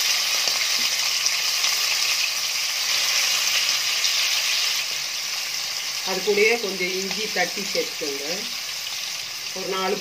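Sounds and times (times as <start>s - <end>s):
plantain sizzling in hot oil: 0.0s - 10.0s.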